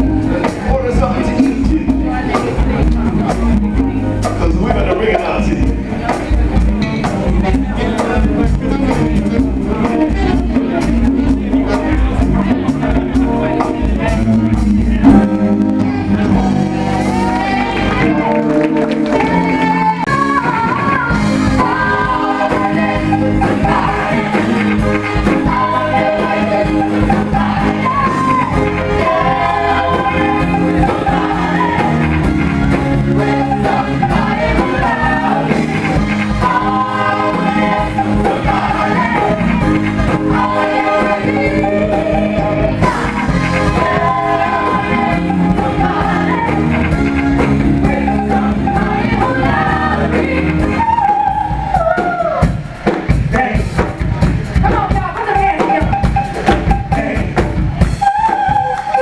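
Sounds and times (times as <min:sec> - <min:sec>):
live rock band playing: 0:00.0 - 0:59.0
woman singing: 0:15.7 - 0:24.2.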